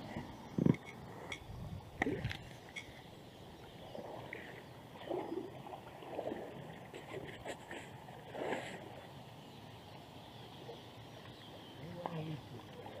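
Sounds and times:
paddle strokes in water: 3.6s - 9.3s.

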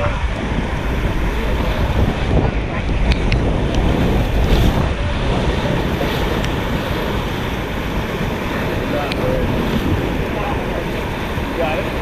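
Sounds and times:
river rapids rushing: 0.0s - 12.0s
wind rumbling on microphone: 0.0s - 12.0s.

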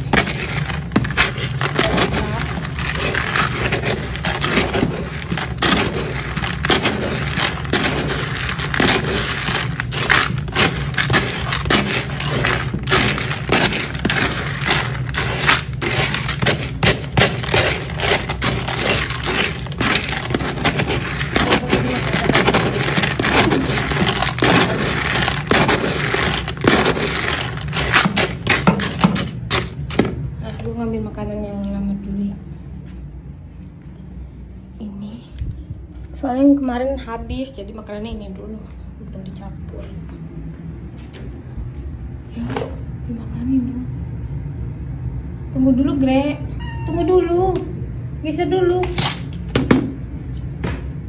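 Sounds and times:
dry kibble rattling in plastic: 0.0s - 30.2s.

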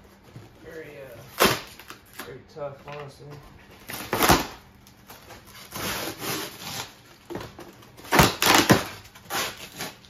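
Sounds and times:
foam scraping and rubbing: 5.3s - 7.2s, 8.1s - 10.0s
foam cracking and crunching: 7.9s - 10.0s.

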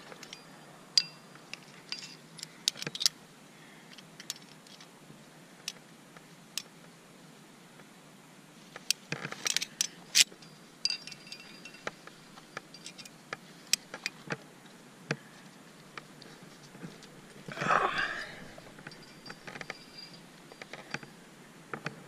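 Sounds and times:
climbing gear clinking together: 9.2s - 14.2s, 17.0s - 21.1s
short metallic ring: 18.1s - 20.7s.

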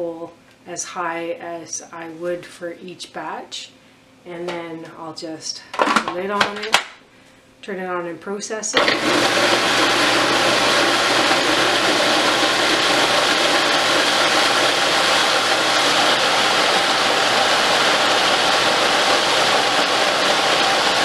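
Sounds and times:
food processor motor running: 8.8s - 21.0s.

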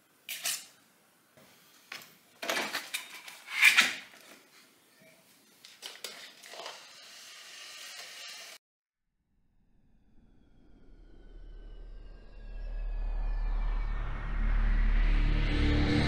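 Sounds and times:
clattering and scraping: 2.4s - 4.2s.

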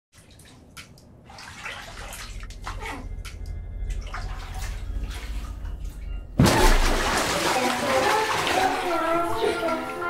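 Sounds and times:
bathwater sloshing and dripping: 0.2s - 10.0s
low hum: 1.9s - 7.4s.

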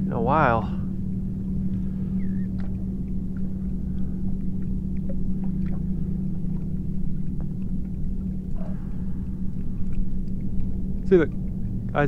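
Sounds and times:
boat motor humming: 0.0s - 12.0s
faint ticks: 1.6s - 12.0s.

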